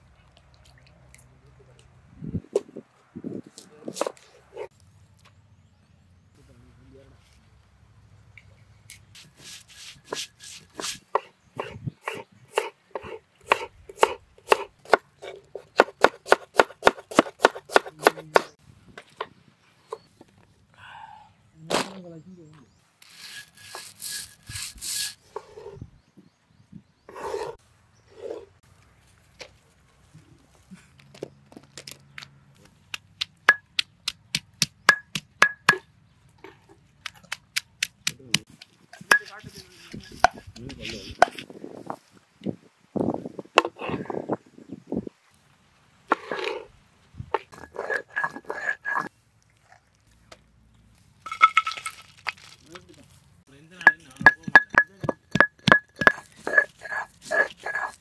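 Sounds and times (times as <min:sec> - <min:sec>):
knife chopping on wooden board: 0:15.6 - 0:18.5.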